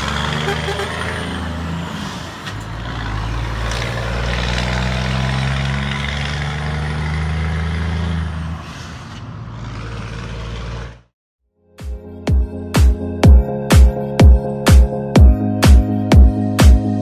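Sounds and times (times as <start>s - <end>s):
truck diesel engine under load: 0.0s - 11.2s.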